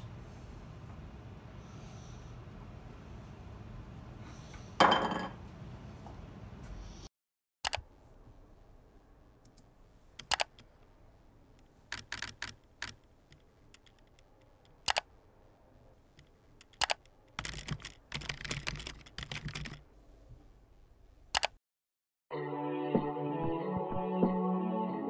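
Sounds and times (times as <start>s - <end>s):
computer keyboard typing: 10.2s - 10.7s, 11.9s - 14.2s, 14.8s - 15.1s, 16.6s - 19.8s, 21.4s - 21.6s.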